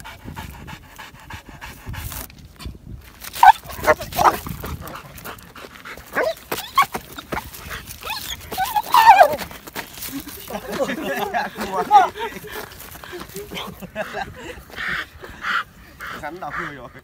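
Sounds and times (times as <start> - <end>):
dog panting: 0.0 - 2.1, 3.4 - 9.8, 10.5 - 17.0
dog yelping: 3.4 - 4.5, 6.1 - 9.5.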